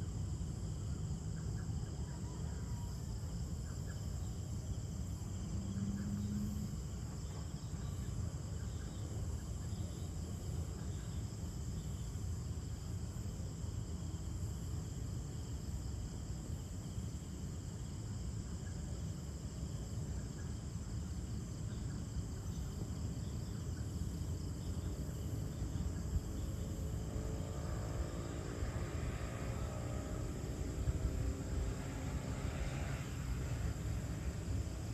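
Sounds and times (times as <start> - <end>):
faint engine: 0.0 - 14.8, 18.0 - 34.9
crickets trilling: 0.0 - 34.9.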